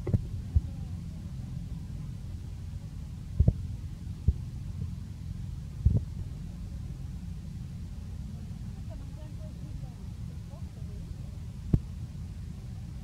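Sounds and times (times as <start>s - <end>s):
steady low rumble: 0.0s - 13.0s.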